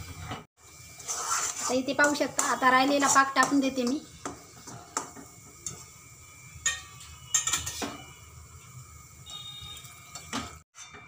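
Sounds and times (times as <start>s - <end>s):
spatula scraping metal pan: 0.9s - 4.1s.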